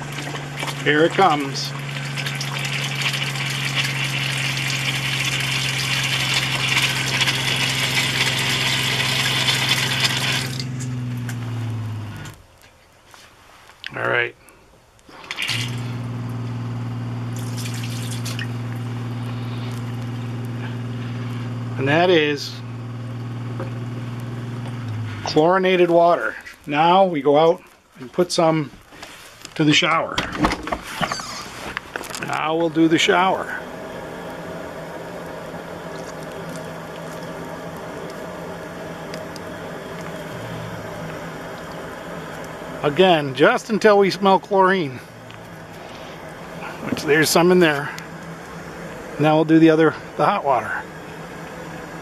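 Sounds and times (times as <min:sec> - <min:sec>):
water running from faucet: 0:00.0 - 0:12.2, 0:15.2 - 0:21.6
water pump humming: 0:00.0 - 0:12.8, 0:15.0 - 0:52.0.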